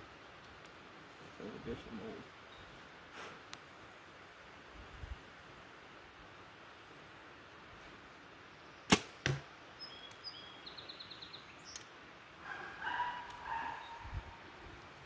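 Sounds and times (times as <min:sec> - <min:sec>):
arrow hitting target: 0:08.9 - 0:09.5
bow string crack: 0:08.9 - 0:09.5.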